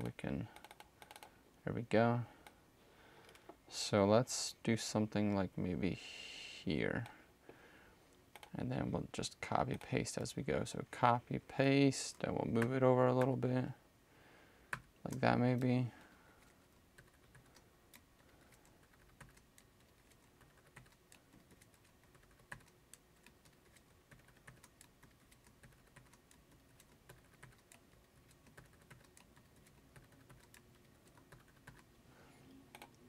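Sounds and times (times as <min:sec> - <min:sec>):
keyboard and mouse clicking: 0:00.4 - 0:01.3, 0:08.3 - 0:08.6, 0:16.4 - 0:31.9, 0:32.7 - 0:33.0.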